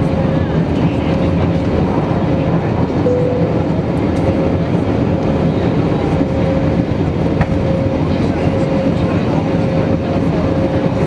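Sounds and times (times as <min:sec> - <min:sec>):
aircraft engine and airflow roar: 0:00.0 - 0:11.0
thin steady whine: 0:03.0 - 0:04.6.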